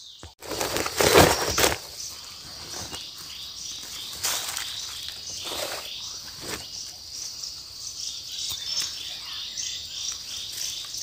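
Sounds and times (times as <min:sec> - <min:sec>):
plants rustling and snapping: 0:00.3 - 0:01.9.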